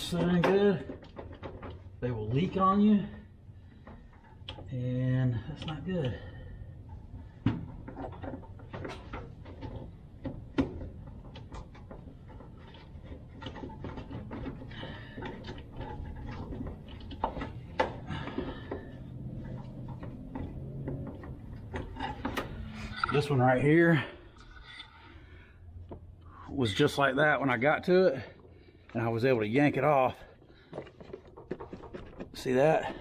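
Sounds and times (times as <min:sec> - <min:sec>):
low background hum: 0:00.0 - 0:33.0.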